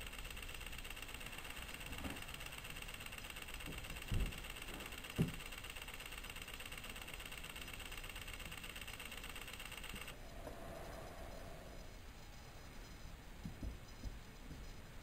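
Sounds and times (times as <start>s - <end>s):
faint high whine: 0.0s - 15.0s
recording hiss: 8.2s - 15.0s.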